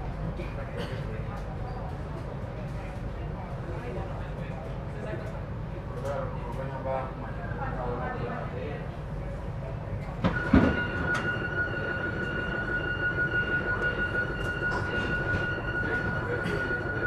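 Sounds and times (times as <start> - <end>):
train rumbling on rails: 10.1 - 17.0
high-pitched inverter whine: 10.2 - 17.0.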